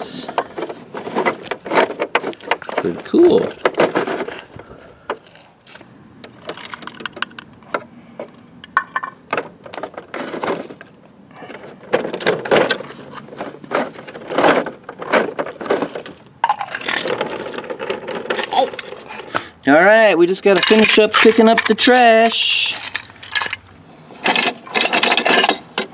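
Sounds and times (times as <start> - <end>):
toy compactor clicking and rattling: 11.9 - 19.6, 20.5 - 25.9.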